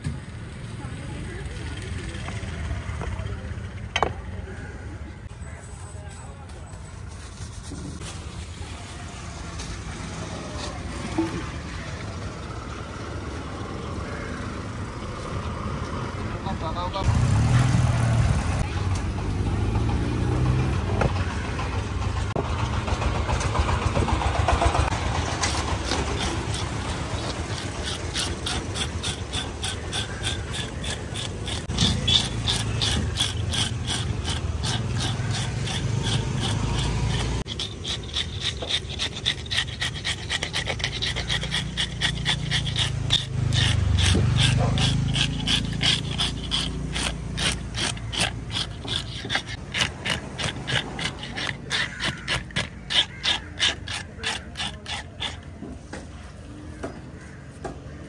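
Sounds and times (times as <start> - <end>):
fish scaler rasping scales: 24.6 - 56.3.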